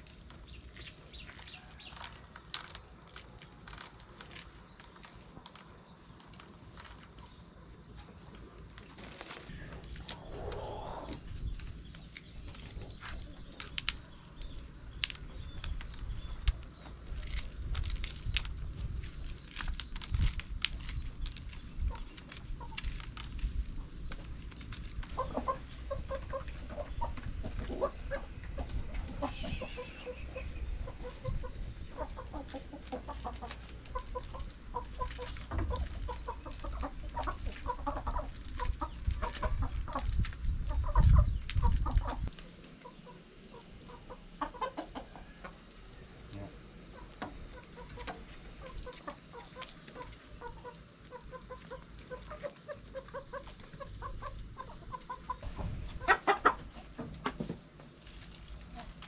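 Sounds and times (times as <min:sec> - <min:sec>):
chickens clucking: 0:09.5 - 0:16.8, 0:24.0 - 0:45.7, 0:46.3 - 0:59.0.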